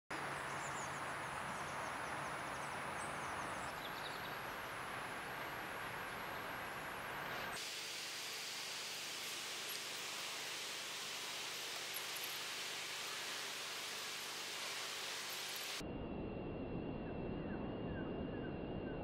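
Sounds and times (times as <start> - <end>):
outdoor background noise: 0.1 - 19.0
small birds chirping: 0.2 - 4.8.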